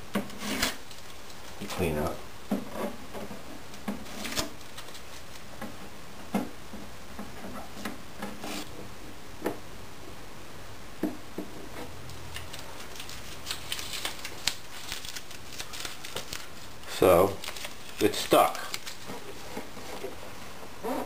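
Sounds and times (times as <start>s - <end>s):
masking tape being peeled: 4.0s - 5.5s, 12.1s - 19.6s.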